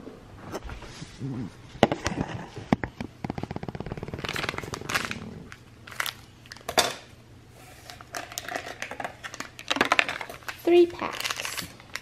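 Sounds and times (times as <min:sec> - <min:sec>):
plastic sachets crinkling: 0:03.4 - 0:06.8, 0:07.9 - 0:12.0.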